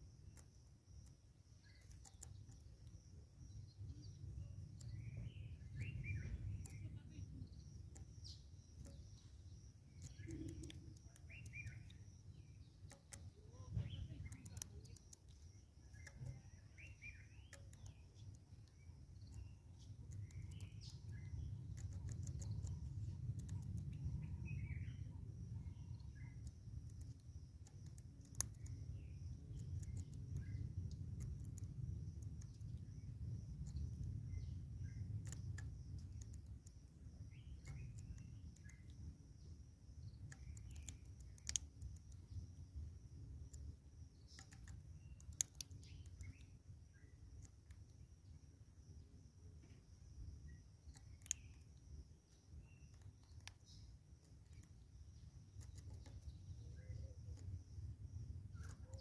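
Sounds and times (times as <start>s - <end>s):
faint insect buzz: 0.0s - 23.2s
birds chirping: 0.0s - 59.0s
sharp clicks: 0.2s - 39.1s, 40.0s - 42.4s, 43.3s - 46.6s, 47.3s - 48.0s, 50.8s - 54.8s, 55.5s - 57.6s
low outdoor rumble: 1.6s - 47.6s.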